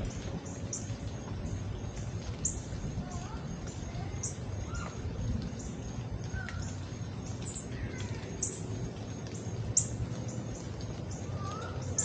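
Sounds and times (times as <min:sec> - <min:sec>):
hummingbird high chip calls: 0:00.0 - 0:00.9, 0:02.4 - 0:05.0, 0:05.6 - 0:08.6, 0:09.4 - 0:10.0, 0:11.1 - 0:12.0
low steady background rumble: 0:00.0 - 0:12.0
lower curving bird calls: 0:00.0 - 0:12.0.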